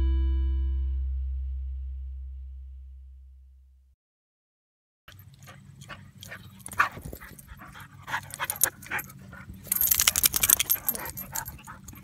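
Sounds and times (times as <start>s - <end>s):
dog panting: 5.2s - 12.0s.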